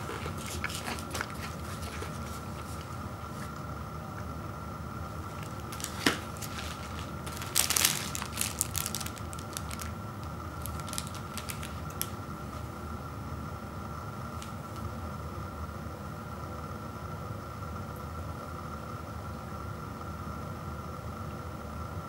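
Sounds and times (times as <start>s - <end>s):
plastic wrapper crinkling: 0.0s - 3.5s, 5.2s - 12.3s.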